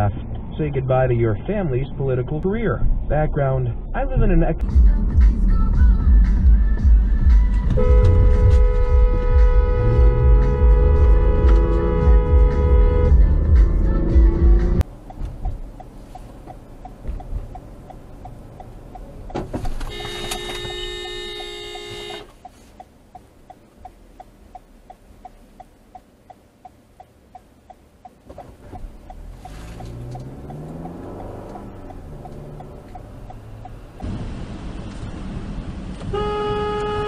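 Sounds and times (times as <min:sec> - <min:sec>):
turn signal ticking: 0:04.6 - 0:37.0
car horn: 0:07.7 - 0:13.6, 0:19.7 - 0:22.4, 0:36.1 - 0:37.0
engine revving up: 0:09.8 - 0:14.8, 0:29.0 - 0:34.1.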